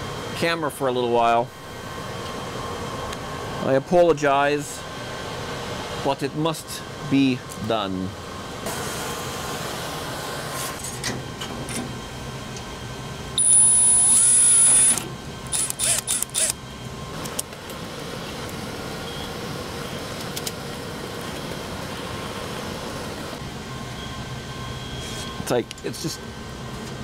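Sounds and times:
equipment fans humming: 0:00.0 - 0:27.0
power drill whining: 0:13.4 - 0:16.6.

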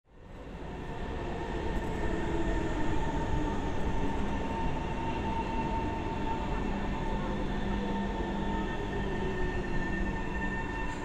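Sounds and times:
train wheels rumbling on rail: 0:00.2 - 0:11.0.

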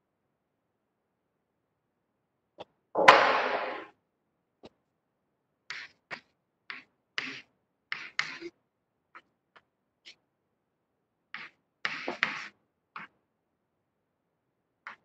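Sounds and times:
chalk scratching on blackboard: 0:05.7 - 0:08.5, 0:11.3 - 0:13.1.

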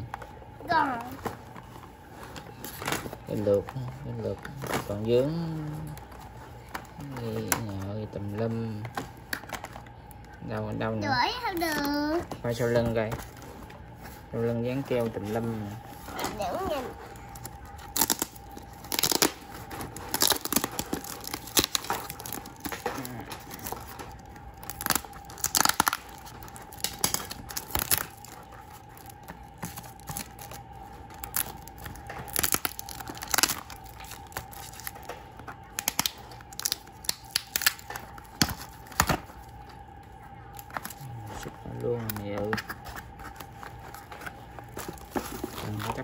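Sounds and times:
tape crinkling: 0:00.0 - 0:46.0
packing tape ripping off box: 0:16.1 - 0:39.4.

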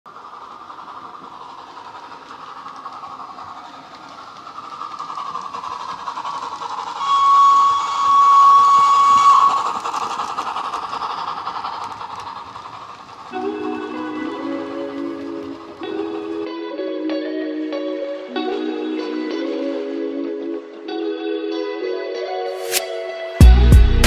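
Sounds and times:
model steam locomotive running: 0:00.1 - 0:20.9
train whistle: 0:07.0 - 0:09.8.

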